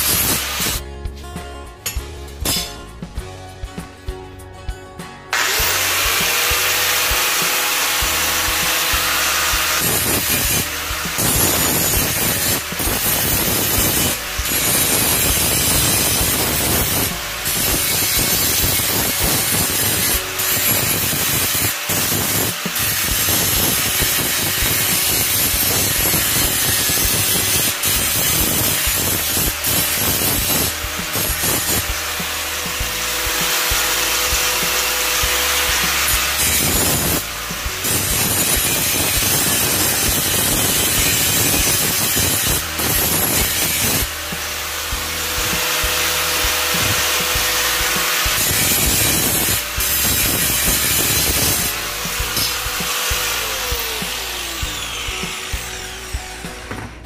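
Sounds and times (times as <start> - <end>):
angle grinder whining: 0.0 - 0.8, 5.3 - 57.0
grinder rasping on metal: 0.0 - 0.8, 5.4 - 56.7.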